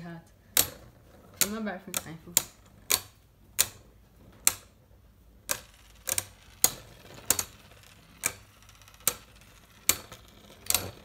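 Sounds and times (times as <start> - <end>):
spinning tops clashing: 5.4 - 11.0.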